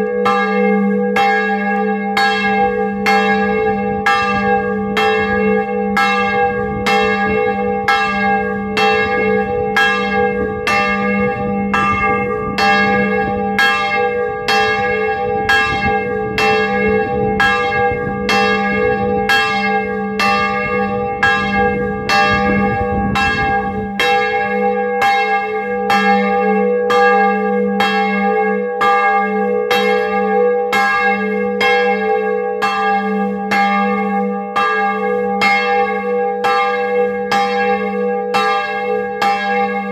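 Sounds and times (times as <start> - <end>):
church bell ringing: 0.0 - 39.9
low rumble: 3.5 - 24.5.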